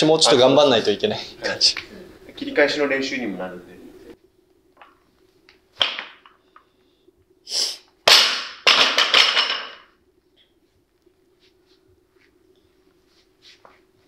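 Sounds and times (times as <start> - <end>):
faint steady hum: 0.0 - 14.0
sharp hissing breaths: 6.4 - 7.9.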